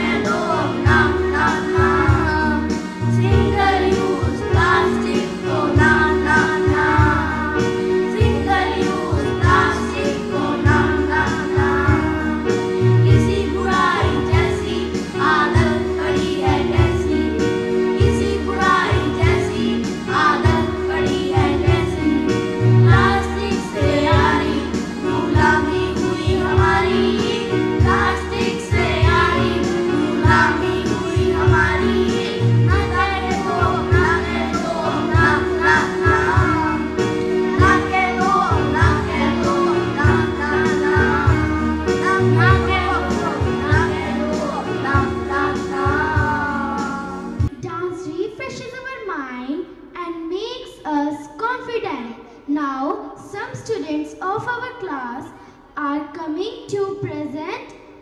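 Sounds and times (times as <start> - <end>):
instrumental accompaniment: 0.0 - 47.9
children singing in chorus: 22.9 - 47.2.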